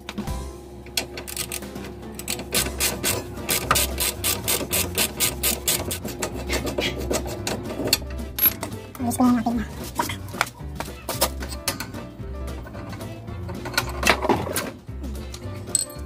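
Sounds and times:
ratchet wrench clicking: 1.3 - 6.2.

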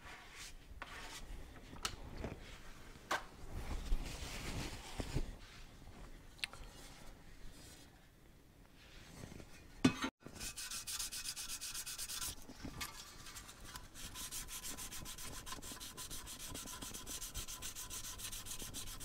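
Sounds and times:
sandpaper sanding metal: 10.3 - 19.0.

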